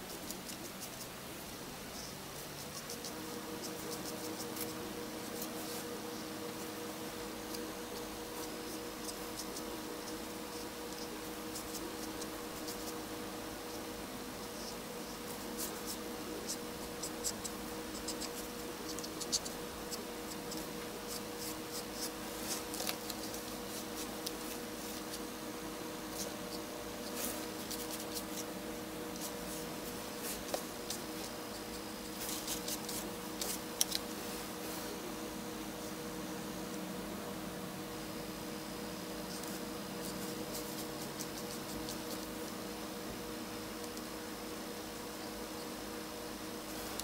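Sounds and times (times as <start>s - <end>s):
faint hum: 0.0s - 47.0s
marker scratching on paper: 2.0s - 6.7s, 7.5s - 13.8s, 14.4s - 25.3s, 26.1s - 34.0s.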